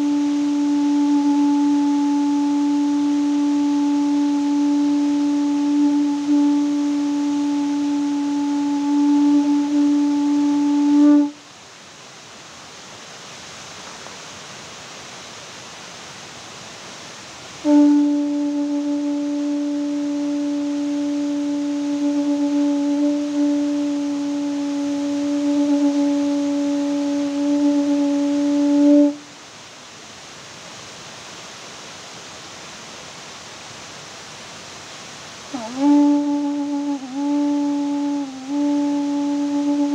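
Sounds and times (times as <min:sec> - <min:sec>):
horn long note: 0:00.0 - 0:11.4, 0:17.6 - 0:29.3, 0:35.5 - 0:39.9
faint hiss: 0:00.0 - 0:39.9.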